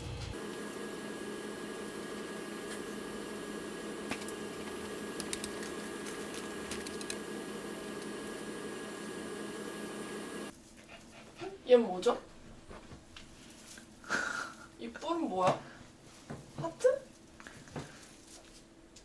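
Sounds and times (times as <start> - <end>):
steady mechanical hum: 0.0 - 19.0.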